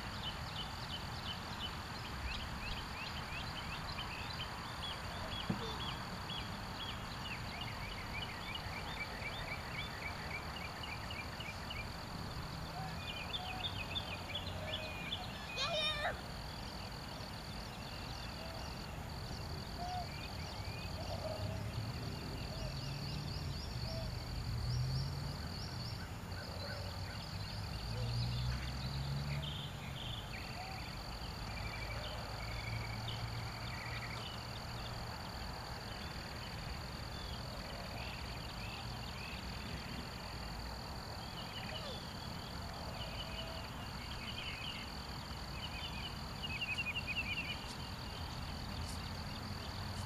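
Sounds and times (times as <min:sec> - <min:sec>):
bird chirps: 0:00.1 - 0:11.9.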